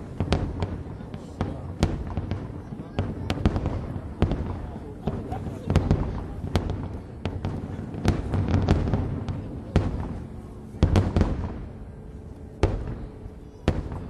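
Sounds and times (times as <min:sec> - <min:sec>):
firework shells booming: 0:00.0 - 0:14.0.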